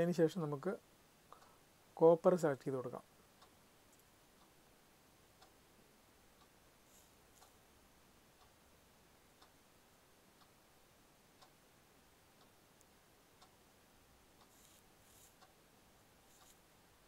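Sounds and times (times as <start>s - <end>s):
soft hiss: 0.0s - 17.0s
faint regular tick: 1.3s - 1.6s, 3.4s - 4.6s, 6.4s - 7.6s, 8.4s - 8.6s, 9.4s - 9.6s, 12.4s - 13.6s, 14.4s - 15.6s, 16.3s - 16.6s.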